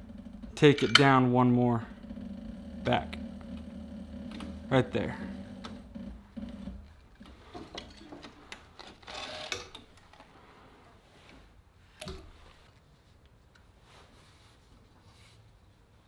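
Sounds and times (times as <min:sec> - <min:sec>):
sewing machine stitching: 0:00.0 - 0:08.2, 0:08.8 - 0:09.8.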